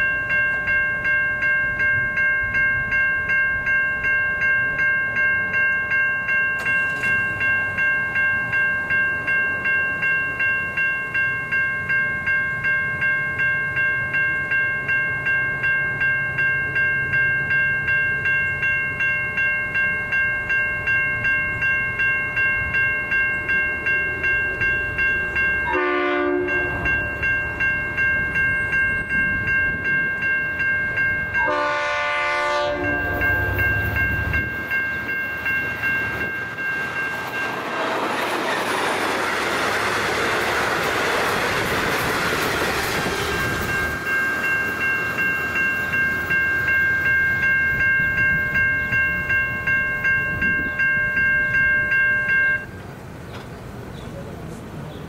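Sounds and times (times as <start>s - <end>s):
level crossing bells ringing: 0.0s - 52.9s
train horn blast: 25.7s - 26.8s, 31.4s - 33.6s
train wheels rushing on rail: 31.2s - 49.0s, 52.5s - 55.0s.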